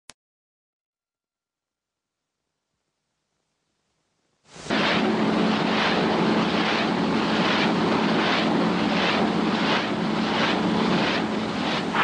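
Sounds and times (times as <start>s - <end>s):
engine hum: 4.6s - 12.0s
rotor whooshing: 4.6s - 12.0s.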